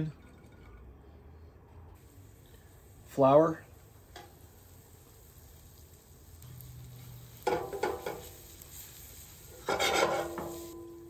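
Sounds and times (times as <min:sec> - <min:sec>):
spatula stirring in a skillet: 0:04.2 - 0:10.8
pan ringing: 0:10.2 - 0:11.0.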